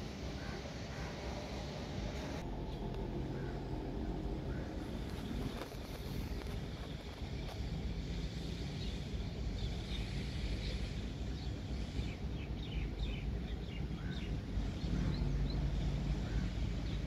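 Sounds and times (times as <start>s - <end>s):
low hum: 0.0s - 17.0s
low outdoor rumble: 0.0s - 17.0s
birds chirping: 8.4s - 17.0s.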